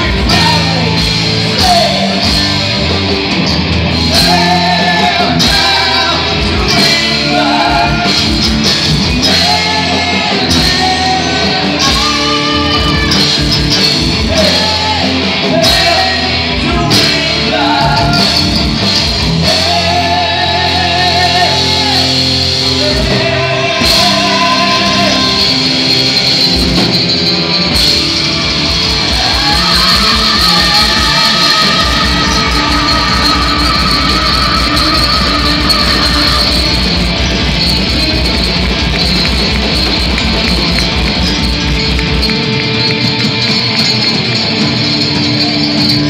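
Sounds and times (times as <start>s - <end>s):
drums: 0.0s - 46.0s
electric guitars: 0.0s - 46.0s
male singer holding long notes: 19.4s - 26.0s, 29.1s - 36.9s.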